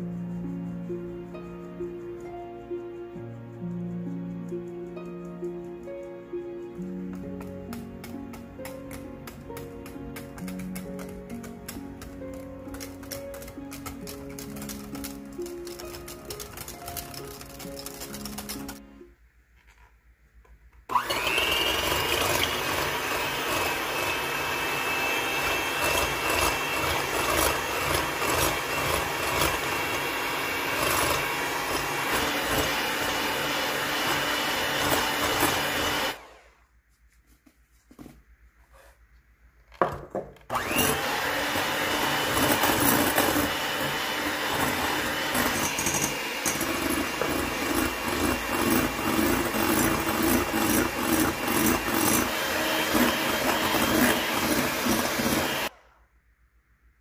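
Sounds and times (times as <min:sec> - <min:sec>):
electric hand mixer running: 0:20.9 - 0:36.6, 0:40.5 - 0:55.8.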